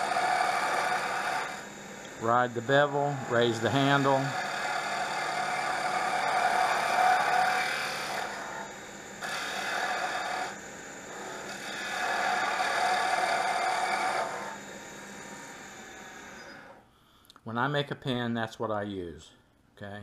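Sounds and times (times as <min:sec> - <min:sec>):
gouge cutting hiss: 0:00.0 - 0:01.7, 0:02.4 - 0:14.6
wood lathe running: 0:00.0 - 0:16.8.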